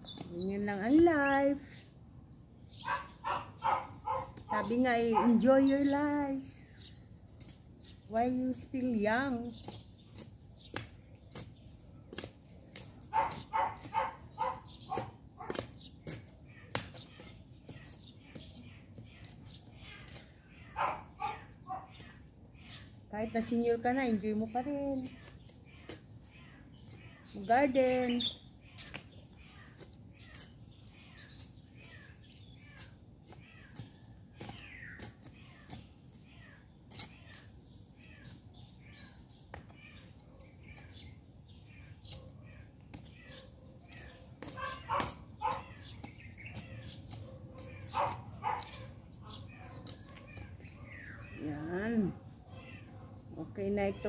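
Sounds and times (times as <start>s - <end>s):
dog barking: 2.8s - 4.4s, 5.1s - 5.4s, 13.1s - 15.6s, 20.7s - 22.0s, 44.5s - 45.7s, 47.2s - 49.8s
trowel scraping soil: 34.4s - 37.6s.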